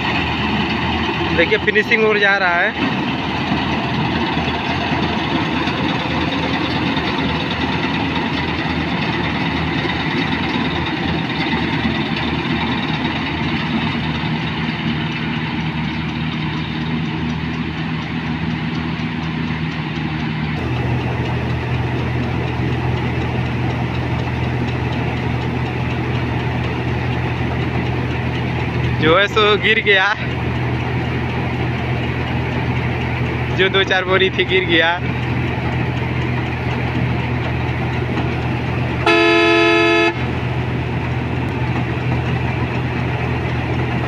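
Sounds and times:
combine harvester diesel engine: 0:00.0 - 0:44.0
low hum of grain unloading: 0:20.6 - 0:31.0.

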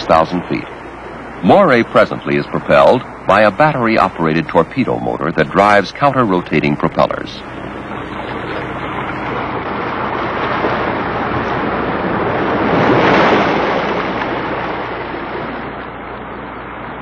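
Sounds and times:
rushing surf-like water: 0:00.0 - 0:17.0.

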